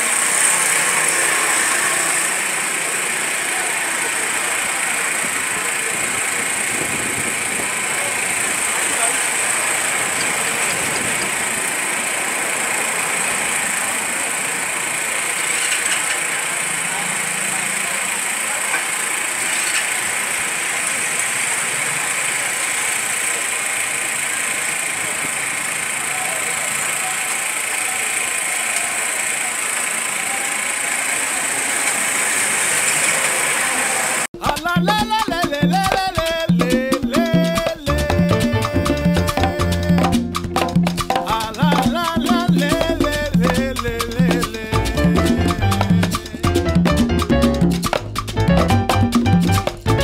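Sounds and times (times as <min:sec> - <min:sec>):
engines running: 0:00.0 - 0:34.3
indistinct voices: 0:13.4 - 0:48.5.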